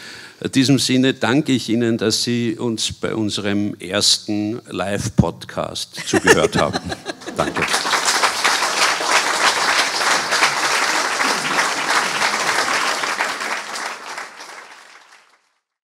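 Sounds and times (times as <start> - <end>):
audience applauding: 6.3 - 15.5.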